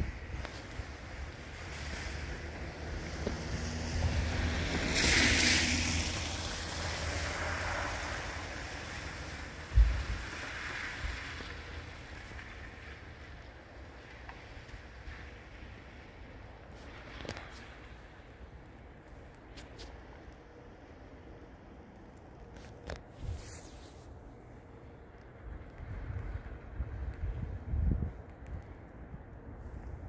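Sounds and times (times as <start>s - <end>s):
wind buffeting microphone: 9.6s - 11.4s, 25.5s - 30.0s.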